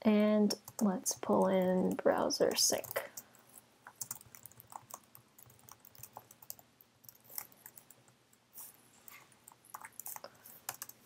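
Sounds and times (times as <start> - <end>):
typing on keyboard: 3.9 - 8.1, 9.4 - 11.0.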